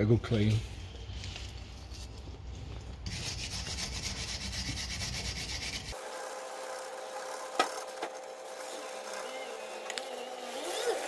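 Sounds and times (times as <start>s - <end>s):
wire brush scrubbing metal: 3.0s - 6.0s.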